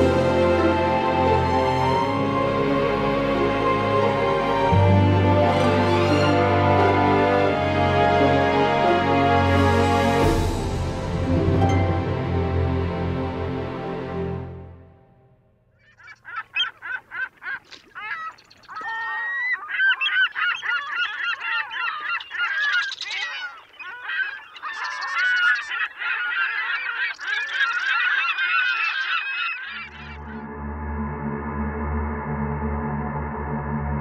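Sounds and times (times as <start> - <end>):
geese honking: 15.8 - 30.4.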